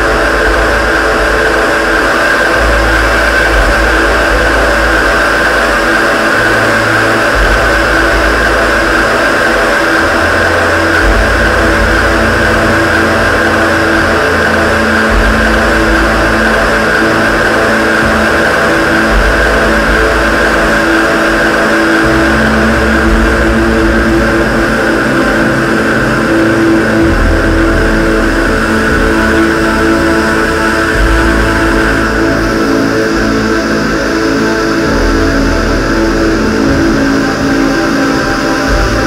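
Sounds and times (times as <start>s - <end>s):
deep bass note: 0.0s - 39.0s
droning synthesizer music: 0.0s - 39.0s.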